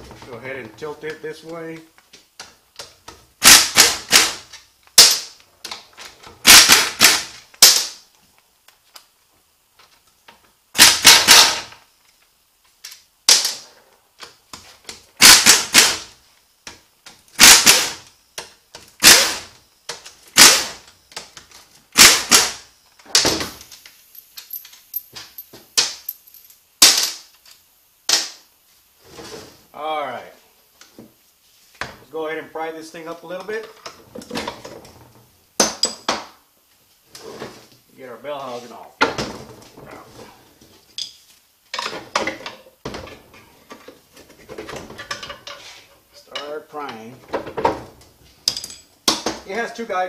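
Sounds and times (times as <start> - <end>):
pneumatic impact wrench hammering: 3.4 - 5.3, 6.4 - 8.0, 10.8 - 11.7, 15.2 - 16.1, 17.4 - 18.1, 19.0 - 19.6, 20.3 - 20.8, 21.9 - 23.6.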